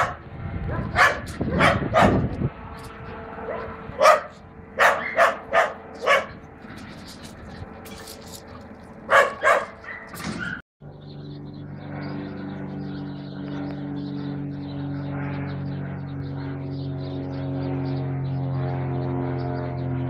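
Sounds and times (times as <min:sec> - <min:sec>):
dog barking: 0:00.0 - 0:02.2, 0:03.5 - 0:06.4, 0:09.1 - 0:10.1
propeller airplane engine droning: 0:00.0 - 0:20.0.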